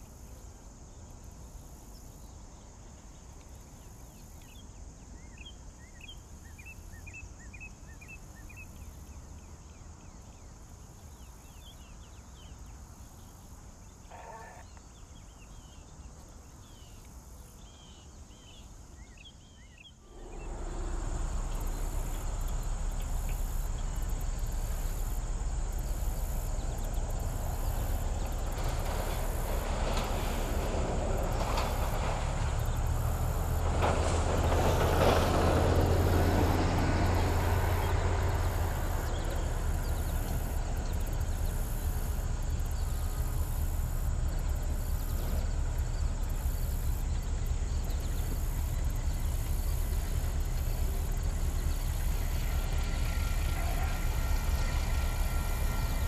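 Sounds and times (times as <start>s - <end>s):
diesel locomotive engine hum: 15.2s - 56.0s
low rumble: 20.0s - 34.5s.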